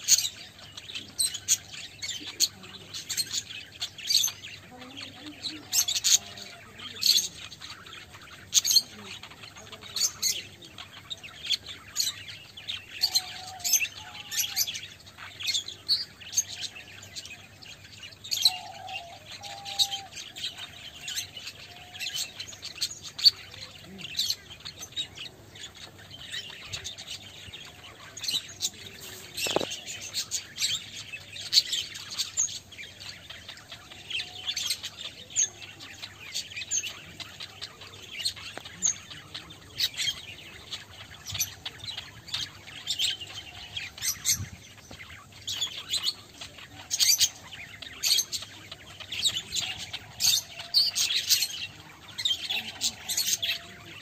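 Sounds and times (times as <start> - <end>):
budgerigars chattering: 0.0 - 54.0.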